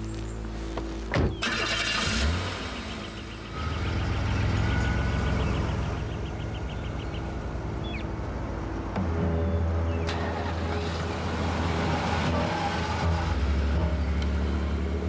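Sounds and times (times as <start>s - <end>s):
car engine running: 0.9s - 9.0s.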